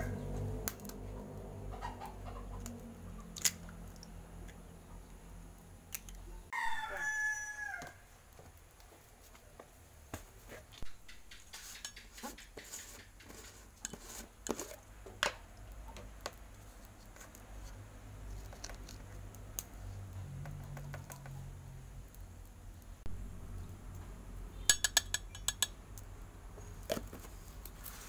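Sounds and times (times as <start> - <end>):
plastic spoon scraping in jar: 11.3 - 14.8.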